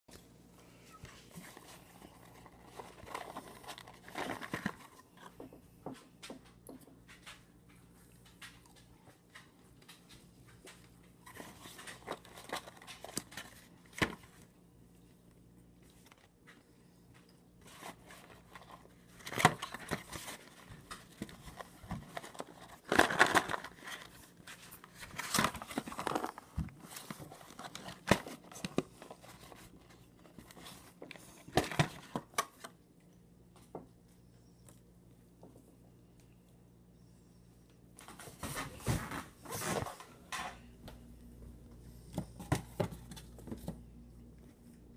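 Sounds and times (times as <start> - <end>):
paper and cardboard rustling: 1.0 - 5.4, 11.2 - 14.4, 17.6 - 32.7, 38.0 - 40.2.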